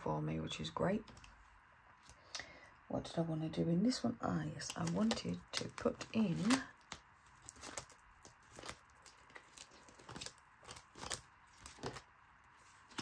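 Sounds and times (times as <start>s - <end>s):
plastic wallets crinkling: 4.6s - 13.0s.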